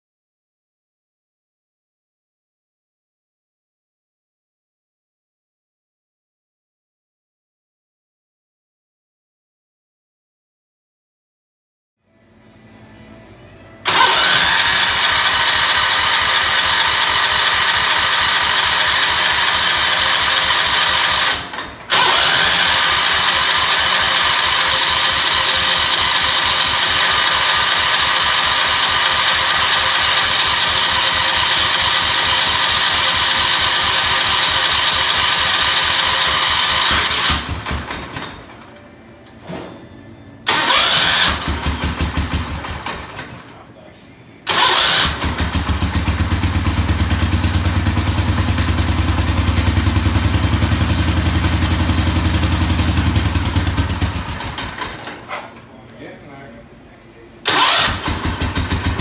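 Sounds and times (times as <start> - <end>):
engine cranking on starter: 13.8 - 38.7, 40.4 - 43.6, 44.4 - 55.7, 57.4 - 59.0.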